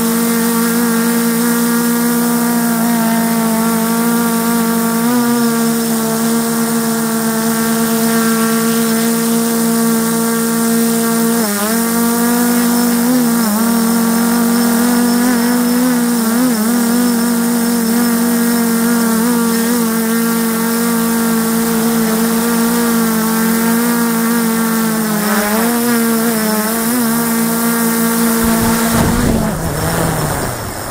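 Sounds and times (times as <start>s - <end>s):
drone propellers humming: 0.0s - 30.9s
rush of noise: 28.2s - 30.9s.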